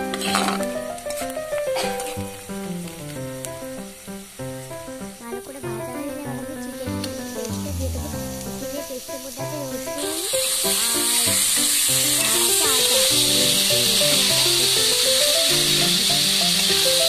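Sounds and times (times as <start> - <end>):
meat sizzling in oil: 0.0 - 17.0
background music: 5.5 - 9.0.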